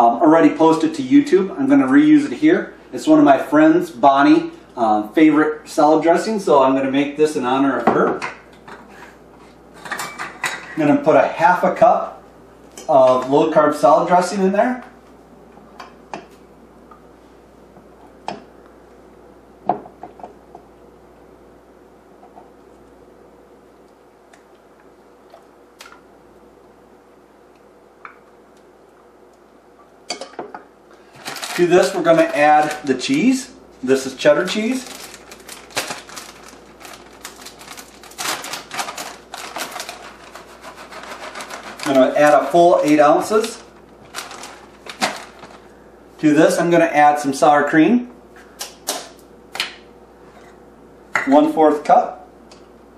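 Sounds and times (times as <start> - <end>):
plastic bag crinkling: 31.0 - 45.8.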